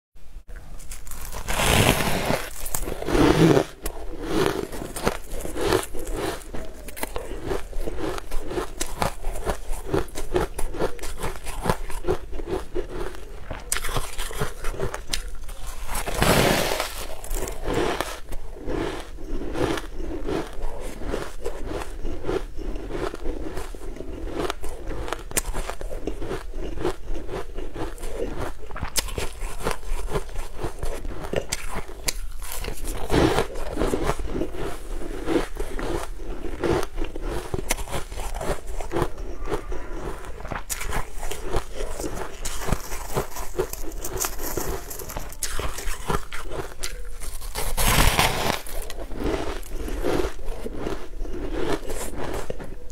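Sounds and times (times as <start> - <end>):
crunching and chewing ice: 0.5 - 52.9.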